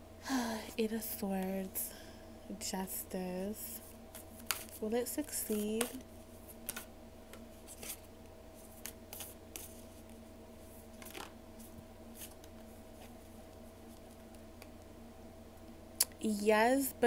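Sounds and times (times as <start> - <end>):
faint steady hum: 0.0 - 17.0
cards being shuffled: 4.1 - 10.2, 10.9 - 14.7.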